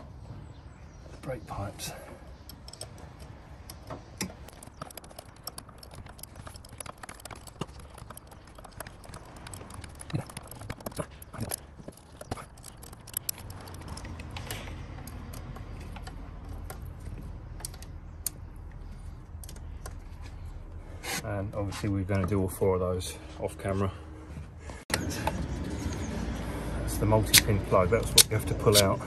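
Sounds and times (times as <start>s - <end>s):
spanner clinking on metal: 2.4s - 16.8s.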